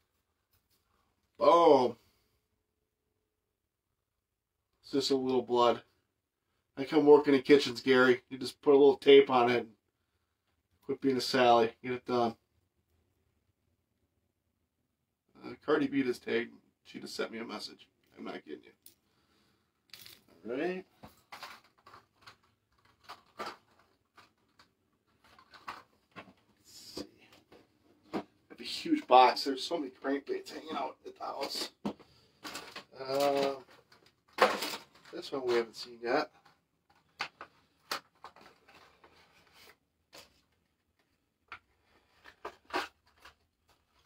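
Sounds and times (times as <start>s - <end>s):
hands rummaging in plastic packaging: 21.1s - 26.4s, 31.4s - 35.8s.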